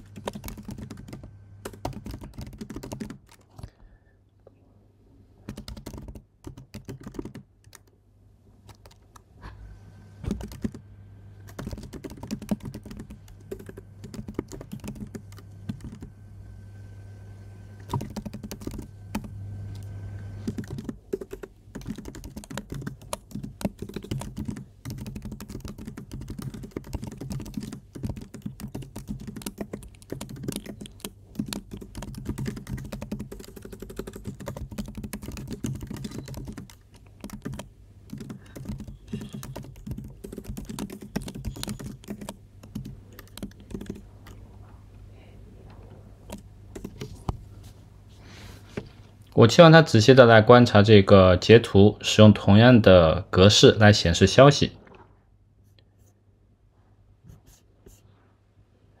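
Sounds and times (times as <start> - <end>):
keyboard typing: 0.0 - 3.7, 5.4 - 8.0, 8.7 - 9.2, 10.2 - 10.8, 11.4 - 16.1, 17.8 - 44.4, 46.2 - 47.4
low steady hum: 0.0 - 59.0.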